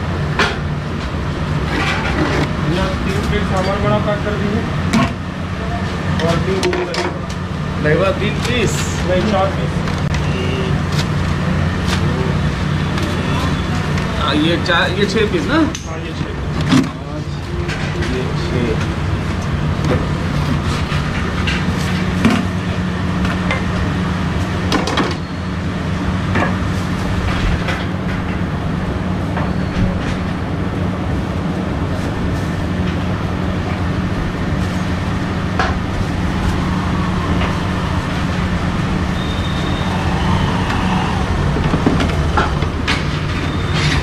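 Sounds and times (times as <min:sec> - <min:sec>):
low hum: 0:25.6 - 0:44.0
steady low rumble: 0:25.6 - 0:44.0.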